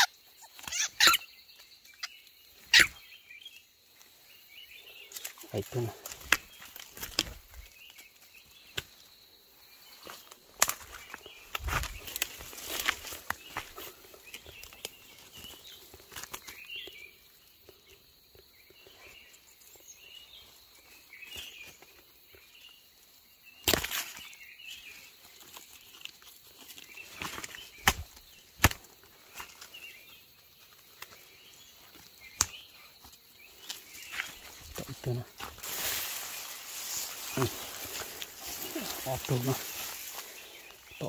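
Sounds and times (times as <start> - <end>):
small birds chirping: 0.0 - 41.0
twigs snapping under footsteps: 5.0 - 9.2, 9.9 - 18.8, 23.6 - 41.0.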